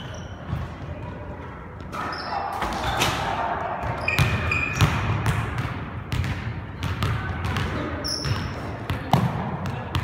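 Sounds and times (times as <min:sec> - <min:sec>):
sneakers squeaking on court: 0:00.0 - 0:10.0
basketball bouncing on wooden floor: 0:04.1 - 0:08.4.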